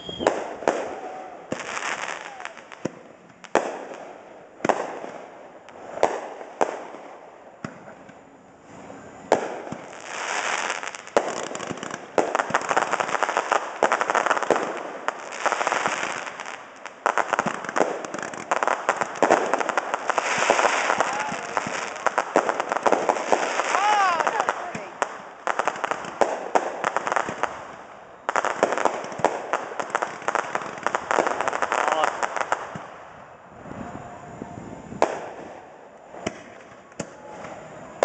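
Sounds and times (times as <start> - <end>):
rapid firework crackling: 9.3 - 33.0.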